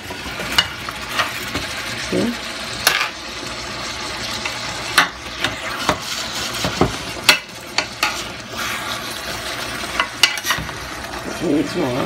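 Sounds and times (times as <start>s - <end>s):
sauce sizzling: 0.0s - 12.0s
metal spoon scraping skillet: 4.4s - 10.8s.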